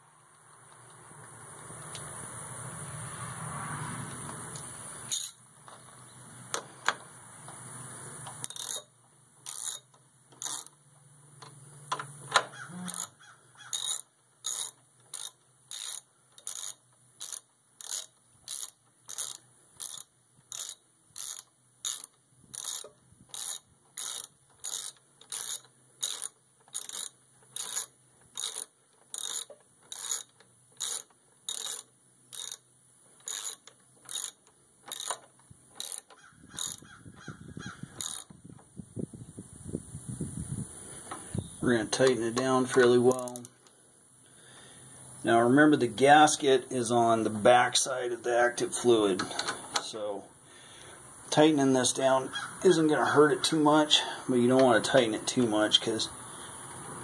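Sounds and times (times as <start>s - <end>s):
ratcheting wrench clicking: 4.5s - 5.9s, 8.2s - 38.4s, 41.9s - 43.8s.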